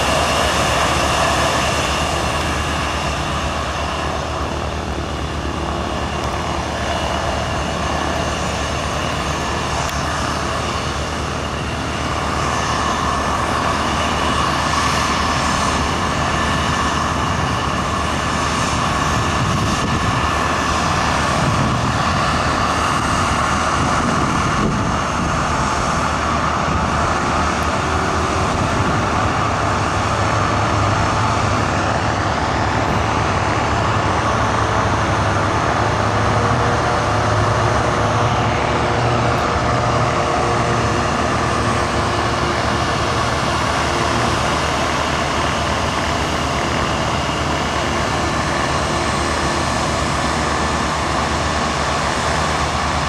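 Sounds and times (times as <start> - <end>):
jet engines at taxi power: 0.0 - 53.0.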